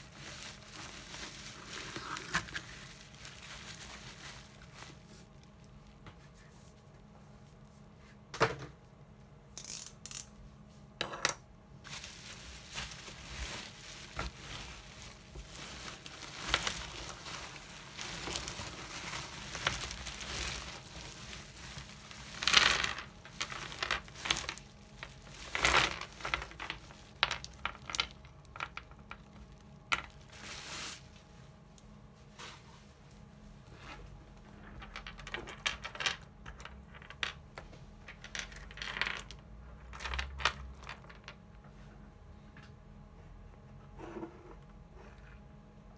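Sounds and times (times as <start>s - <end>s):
plastic bubble wrap crinkling: 0.0s - 6.0s, 11.8s - 32.8s.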